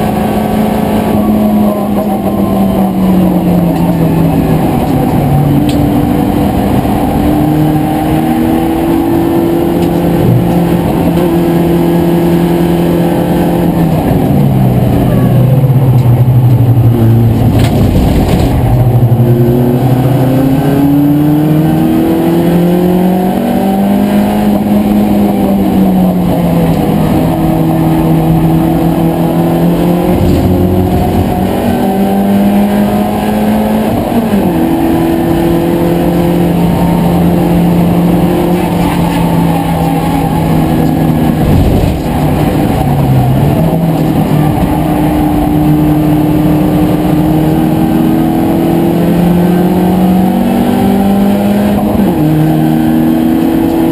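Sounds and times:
race car engine revving: 0.0s - 53.9s.

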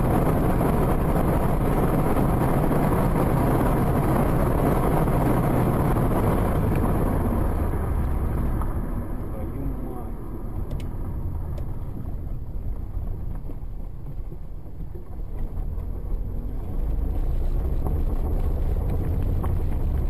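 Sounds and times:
wind buffeting microphone: 0.0s - 9.2s
car rumble: 0.0s - 20.0s.

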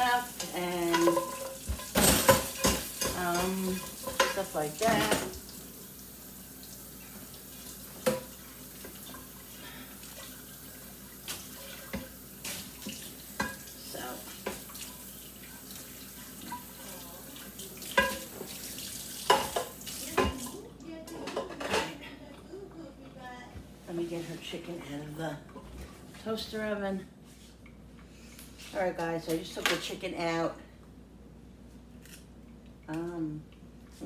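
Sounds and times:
dish brush scrubbing pan: 0.0s - 5.8s, 7.4s - 22.0s
faucet running into sink: 0.1s - 20.7s
pan clattering in dish rack: 0.3s - 5.4s, 17.9s - 18.6s, 19.2s - 22.0s
pan knocking against sink: 0.9s - 5.4s.

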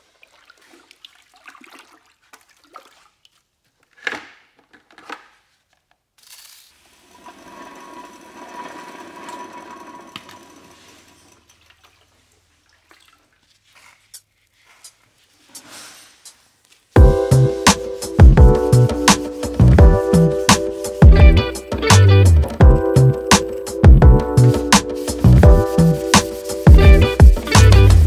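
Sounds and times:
water sloshing in a bucket: 0.0s - 3.7s, 11.4s - 14.4s.

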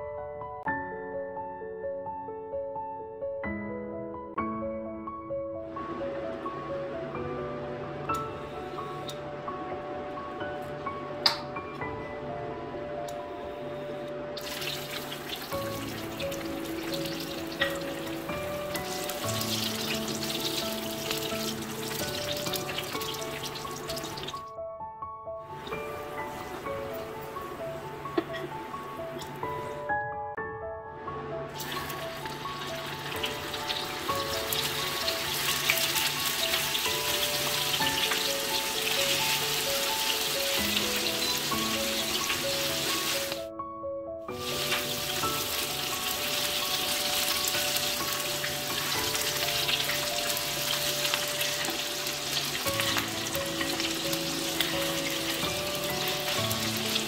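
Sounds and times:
background music: 0.0s - 57.0s
nuts sizzling in hot oil: 14.4s - 24.4s, 31.6s - 43.4s, 44.4s - 57.0s.

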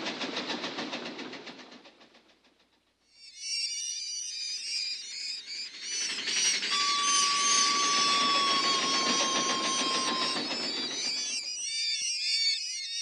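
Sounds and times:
train clickety-clack: 0.0s - 3.0s, 6.0s - 11.4s
steady high tone: 3.4s - 12.9s
bats squeaking: 3.8s - 13.0s.

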